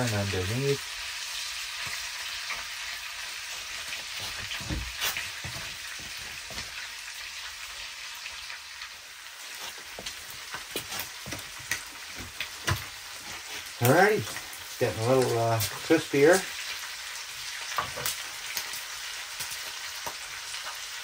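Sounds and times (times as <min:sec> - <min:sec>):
meat sizzling in a frying pan: 0:00.0 - 0:21.0.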